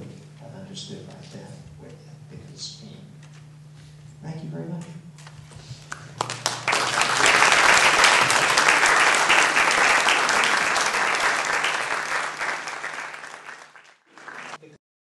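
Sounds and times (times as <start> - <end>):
audience applauding: 5.9 - 14.8.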